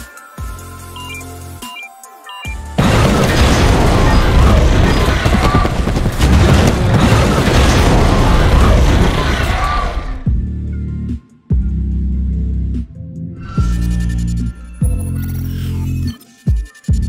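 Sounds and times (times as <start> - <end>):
booming blasts: 2.8 - 10.3.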